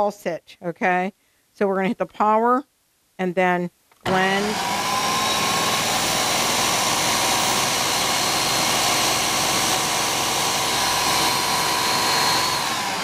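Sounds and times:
blender motor running: 4.0s - 13.0s.

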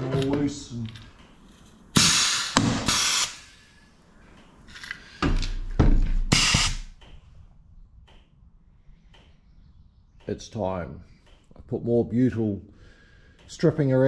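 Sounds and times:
rivet gun hissing and snapping: 2.0s - 3.6s.

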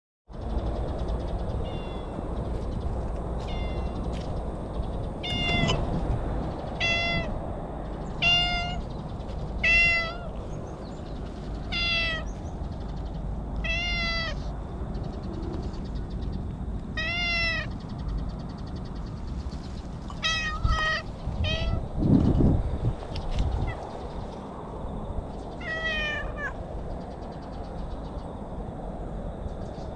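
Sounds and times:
cat meowing: 1.6s - 2.2s, 3.4s - 4.1s, 5.2s - 5.9s, 6.8s - 7.4s, 8.2s - 8.8s, 9.6s - 10.4s, 11.6s - 12.4s, 13.6s - 14.5s, 16.9s - 17.7s, 20.1s - 21.9s, 25.6s - 26.6s.

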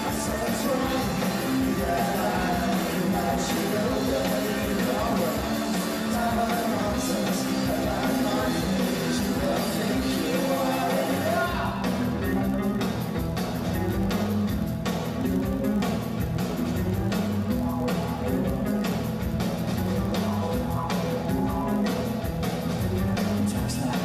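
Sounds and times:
man singing: 0.0s - 12.8s, 19.8s - 24.0s
bass guitar: 0.0s - 24.0s
drum beat: 0.0s - 24.0s
electric guitar: 0.0s - 24.0s.

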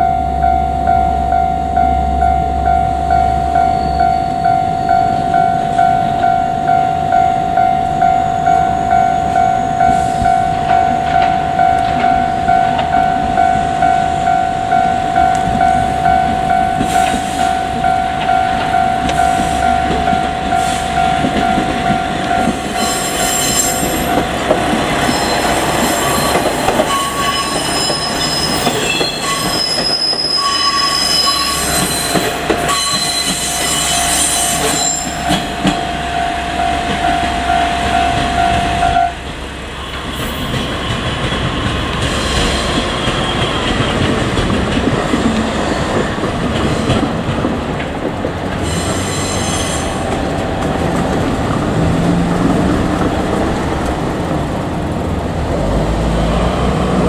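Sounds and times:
level-crossing warning bell: 0.0s - 47.4s
diesel railcar engines running: 0.0s - 57.0s
train wheel squeals: 3.5s - 5.8s, 22.4s - 24.2s, 24.9s - 35.9s, 39.8s - 44.2s, 48.6s - 50.1s.

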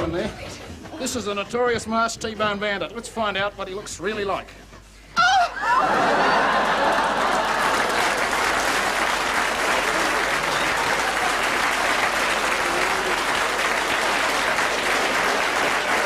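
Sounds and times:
audience applauding: 5.7s - 16.0s.

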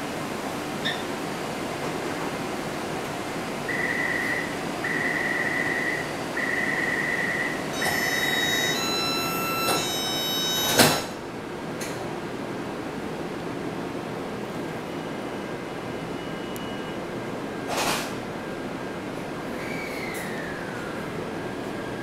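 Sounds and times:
door-closing warning beeps: 3.7s - 11.2s, 14.9s - 17.1s
steady warning tones: 3.7s - 11.2s
train doors shutting thud: 9.6s - 11.2s.

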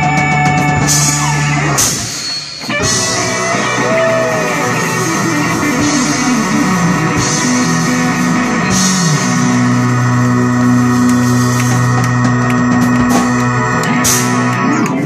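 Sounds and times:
blues band held chord: 0.0s - 15.0s
cymbal crash: 0.8s - 3.8s.

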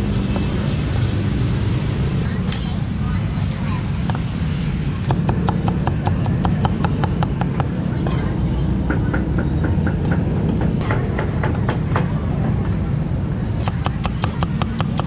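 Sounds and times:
low rumble of street traffic: 0.0s - 15.0s
thin high squeal: 7.9s - 8.7s
cleaver chopping on wooden block: 13.6s - 15.0s.

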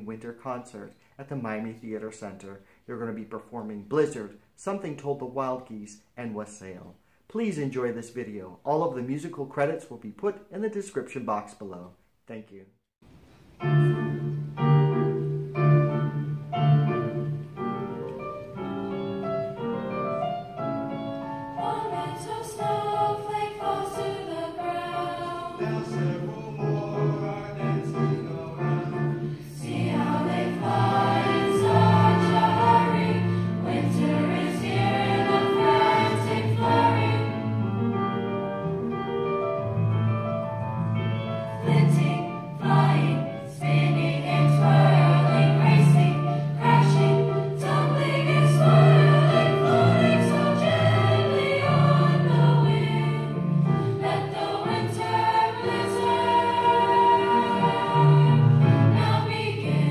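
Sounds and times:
choir singing: 13.6s - 38.0s, 41.4s - 59.9s.

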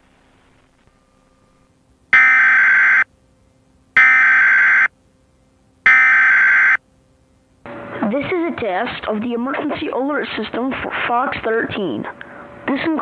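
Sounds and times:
digital data tone bursts: 5.9s - 6.8s.

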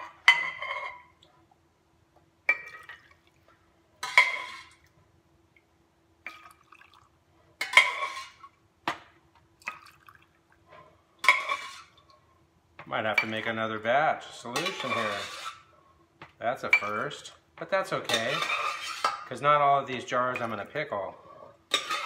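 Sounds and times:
faint steady hum: 0.0s - 22.0s
brine pouring into jars: 6.3s - 7.1s, 9.6s - 10.4s.

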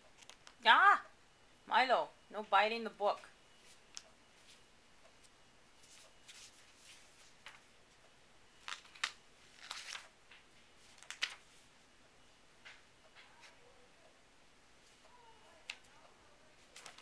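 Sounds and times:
paper pages rustling: 5.8s - 7.7s, 8.6s - 11.6s, 16.6s - 17.0s.

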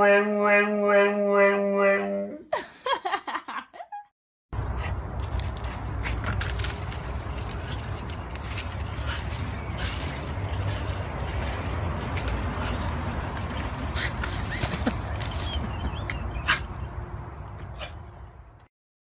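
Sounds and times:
low outdoor rumble: 4.6s - 16.0s
leafy branch rustling and cracking: 5.3s - 10.6s.

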